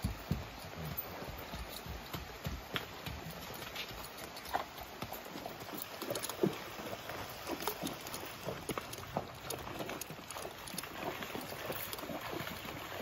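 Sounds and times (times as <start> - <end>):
hooves splashing through water: 0.0 - 13.0
horse hooves clopping: 0.0 - 13.0
running water: 0.0 - 13.0.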